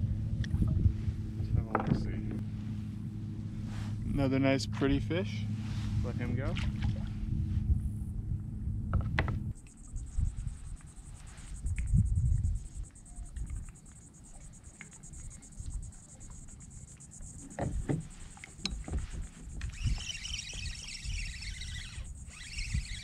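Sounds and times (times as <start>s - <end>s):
steady high-pitched buzz: 0.0s - 23.0s
wind rumble on microphone: 0.0s - 23.0s
gear knocking on plastic kayak: 17.4s - 20.1s.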